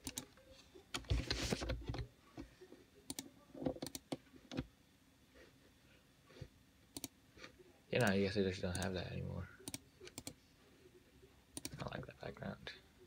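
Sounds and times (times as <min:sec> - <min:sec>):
computer keyboard keystrokes: 0:03.1 - 0:04.7, 0:09.6 - 0:10.4, 0:11.6 - 0:11.8.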